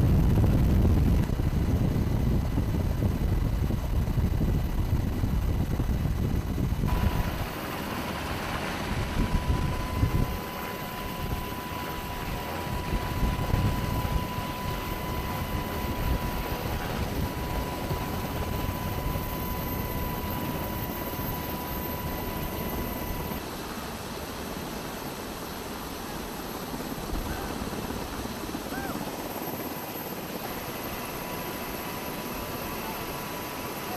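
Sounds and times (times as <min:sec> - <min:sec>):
helicopter rotor and turbine: 0:00.0 - 0:33.9
thin steady whine: 0:00.0 - 0:33.9.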